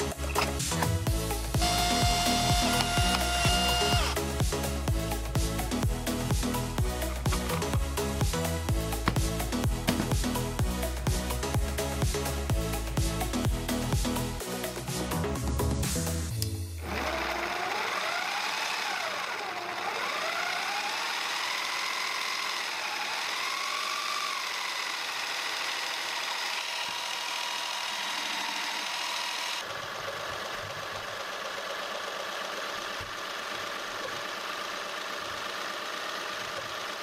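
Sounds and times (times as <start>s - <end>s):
motor and plastic gears whining: 0.0s - 11.5s, 16.4s - 37.0s.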